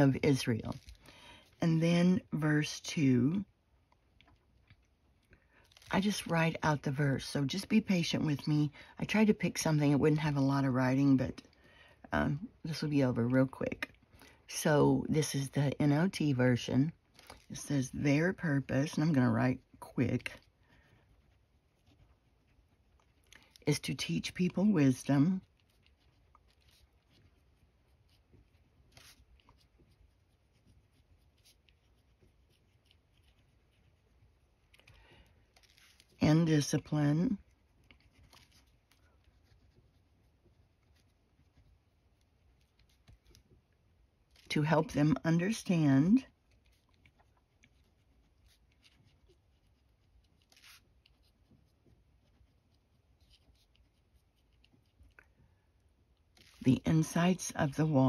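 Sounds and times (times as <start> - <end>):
pen scratching on paper: 17.6 - 34.7, 44.4 - 55.2.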